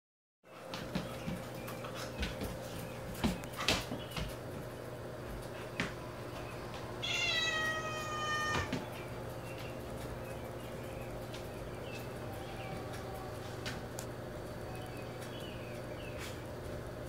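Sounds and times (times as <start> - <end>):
steady low hum: 0.5 - 17.0
cat meowing: 7.0 - 8.8.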